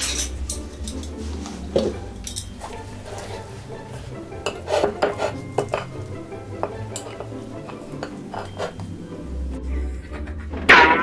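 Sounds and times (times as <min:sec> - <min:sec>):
knocks and clinks: 0:00.0 - 0:02.9, 0:04.4 - 0:08.9
tableware clattering: 0:00.0 - 0:09.1, 0:10.0 - 0:11.0.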